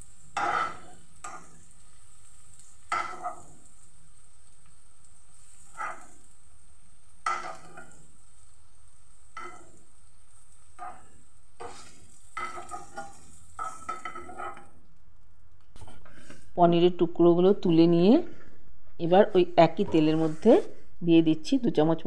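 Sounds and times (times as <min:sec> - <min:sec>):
oil sizzling in pan: 0:00.0 - 0:16.3
metal spoon scraping frying pan: 0:00.2 - 0:01.8, 0:02.5 - 0:03.8, 0:05.3 - 0:06.4, 0:07.2 - 0:14.8.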